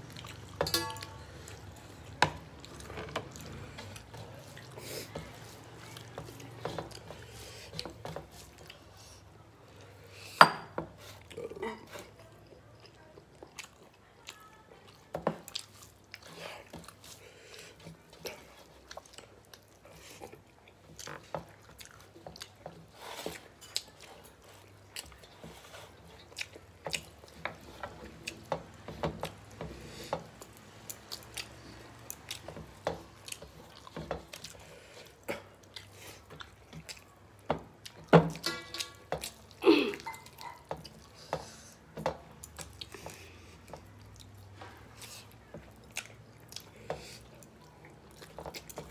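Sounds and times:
chewing and smacking: 0.0 - 10.3, 11.0 - 48.9
light taps on steel plates: 0.6 - 1.2.

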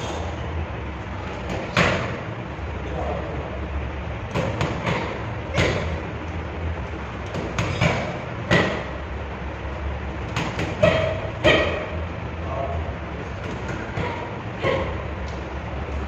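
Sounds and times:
boxing gloves slapping mitts: 1.2 - 2.2, 4.3 - 6.0, 7.2 - 8.9, 10.2 - 11.8, 13.2 - 15.4.

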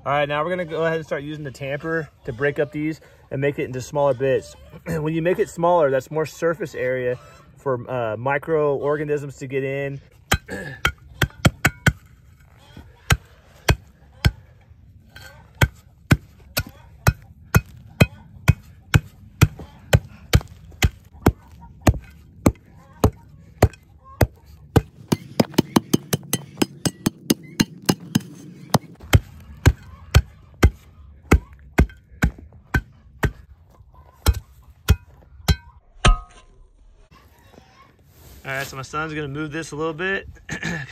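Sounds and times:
tamper striking charcoal: 10.3 - 12.1, 15.1 - 33.5, 34.3 - 36.5.

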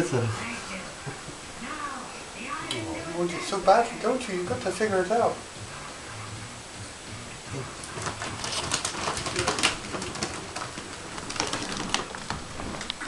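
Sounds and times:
ferret scrabbling in plastic tunnel: 7.9 - 13.0.

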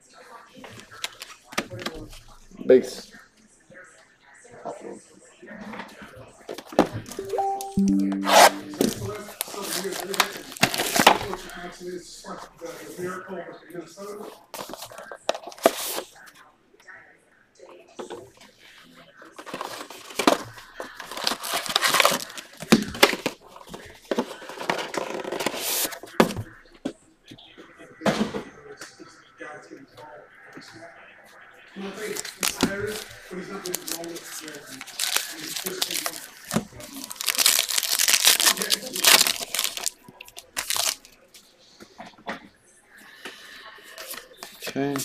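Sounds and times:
foil card pack crinkling and tearing: 9.5 - 11.5, 21.0 - 23.4, 32.1 - 41.1.

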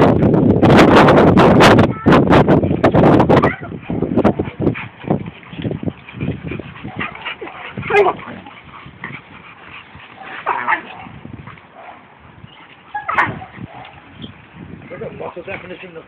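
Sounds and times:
dogs growling and grunting: 2.7 - 14.6
dog yelps: 6.8 - 8.5, 12.9 - 14.0.

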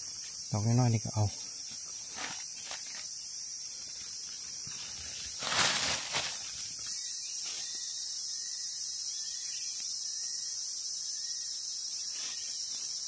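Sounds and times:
insects chorus: 0.0 - 13.0
faint rustle or footstep: 1.7 - 3.1, 4.6 - 7.7.

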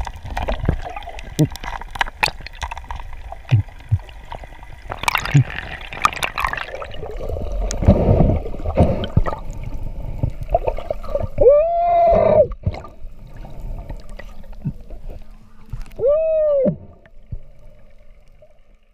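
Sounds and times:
underwater knocks: 0.0 - 6.5
underwater water noise: 0.0 - 18.9
muffled underwater shouts: 11.4 - 12.5, 15.4 - 17.0.

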